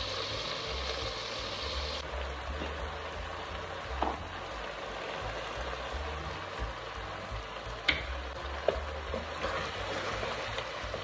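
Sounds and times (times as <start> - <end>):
food sizzling in oil: 0.0 - 11.0
wooden spatula scraping pot: 9.1 - 11.0.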